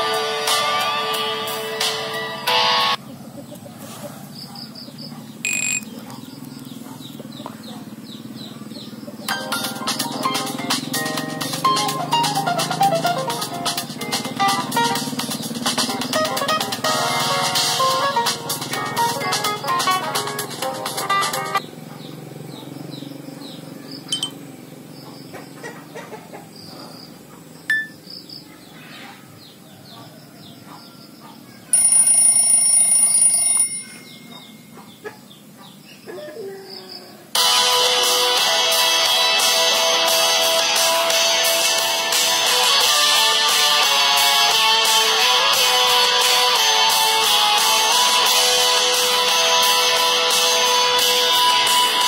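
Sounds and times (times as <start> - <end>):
birds chirping: 3.0 - 11.6, 13.8 - 16.7, 21.4 - 32.3, 33.2 - 37.3
faint high wildlife chirps: 4.3 - 7.8
short electronic phone beep: 5.5 - 5.9.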